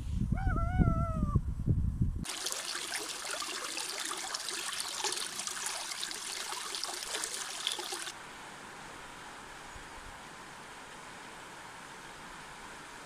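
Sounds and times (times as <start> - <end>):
water trickling over gravel: 2.2 - 8.2.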